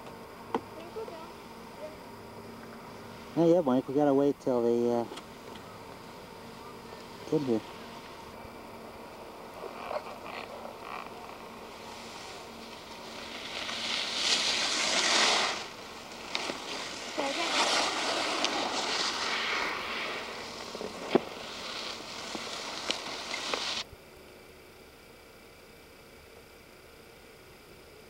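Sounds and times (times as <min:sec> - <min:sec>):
skis scraping over packed snow: 0:07.0 - 0:08.3, 0:09.2 - 0:23.9.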